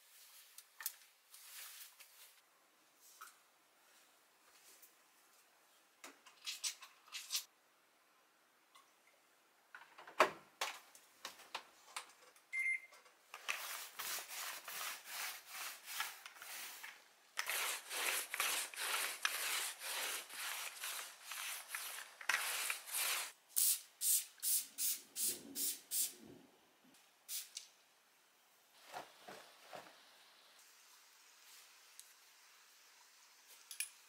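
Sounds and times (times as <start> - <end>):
lint roller rubbing on fabric: 13.6 - 23.4
spray bottle spraying: 17.4 - 26.2, 27.3 - 27.6.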